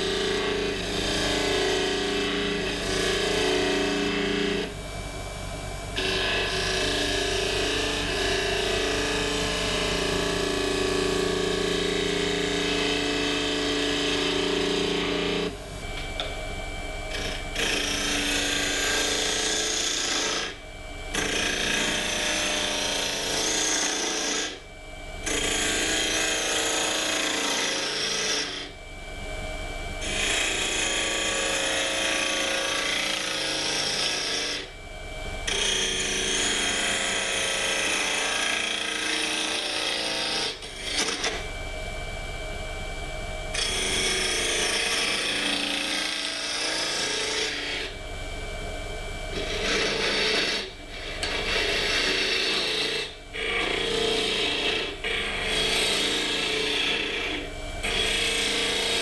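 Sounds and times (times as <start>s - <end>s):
gouge cutting wood on lathe: 23.0s - 24.6s, 26.8s - 28.6s, 32.5s - 34.6s, 43.6s - 47.9s, 49.4s - 58.9s.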